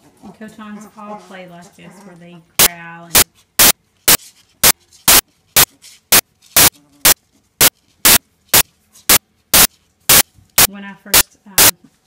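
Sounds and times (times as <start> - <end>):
bursts of static noise: 2.6 - 11.7.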